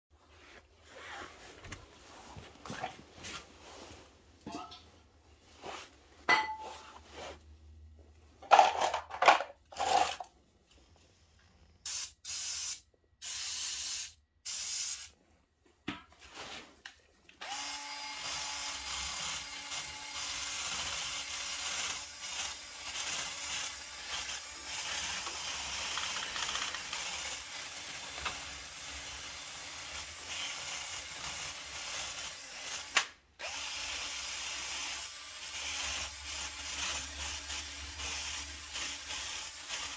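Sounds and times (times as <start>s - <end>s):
short hissing bursts: 11.8s - 15.1s
cordless drill running: 17.4s - 27.8s, 30.2s - 39.9s.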